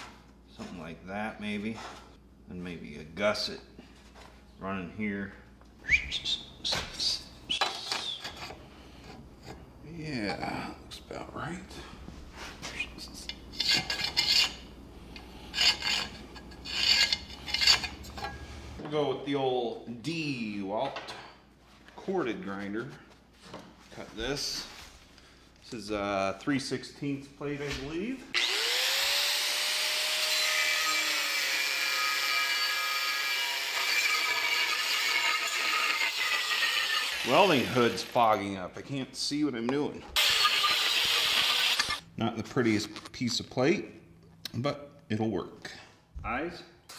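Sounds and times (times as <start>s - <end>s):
marking tool scratching steel: 13.2s - 18.4s
angle grinder cutting steel: 13.6s - 14.6s, 15.5s - 18.4s, 28.4s - 38.2s, 40.2s - 42.0s.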